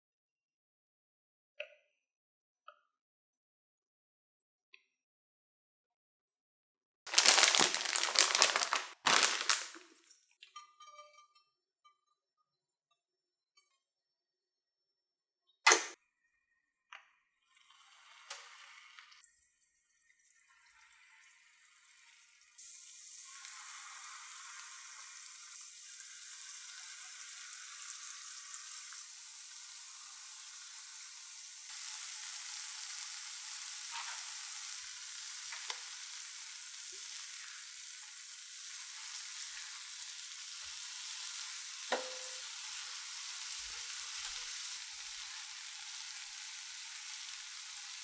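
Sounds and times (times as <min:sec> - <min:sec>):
batter sizzling in hot oil: 0:17.5 - 0:48.0.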